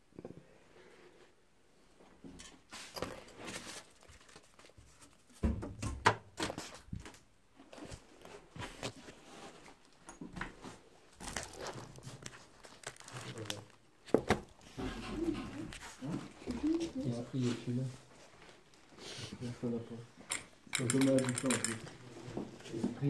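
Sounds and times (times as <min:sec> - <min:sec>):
rummaging through junk: 0:10.7 - 0:17.0.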